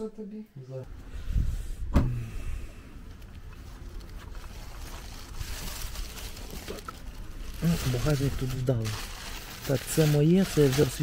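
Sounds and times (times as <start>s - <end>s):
car boot lid clunk: 1.9s - 2.2s
plastic bags rustling: 3.2s - 11.0s.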